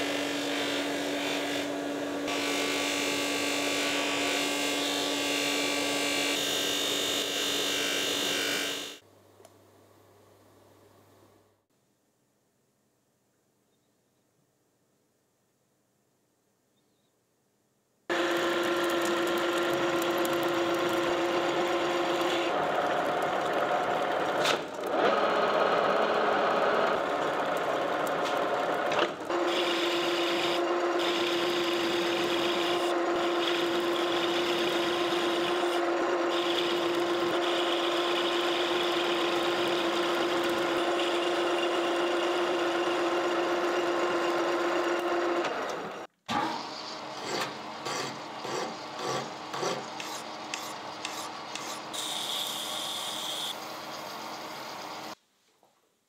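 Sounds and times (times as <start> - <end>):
metal lathe humming: 18.1 - 46.0
tool rubbing spinning bolt head: 47.2 - 52.5.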